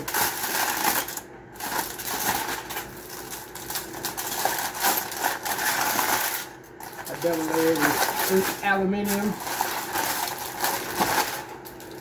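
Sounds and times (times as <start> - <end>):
aluminum foil crinkling: 0.0 - 12.0.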